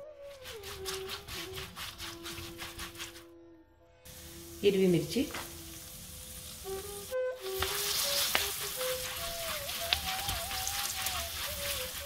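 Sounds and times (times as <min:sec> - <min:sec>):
soft flute music: 0:00.0 - 0:04.6, 0:06.6 - 0:12.0
chillies sizzling in hot oil: 0:04.1 - 0:12.0
spatula ticks: 0:07.6 - 0:12.0.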